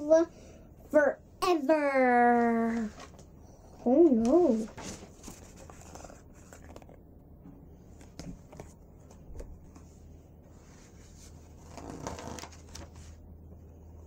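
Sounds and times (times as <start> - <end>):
paper pages rustling: 2.6 - 3.3, 4.2 - 7.0, 7.9 - 13.2.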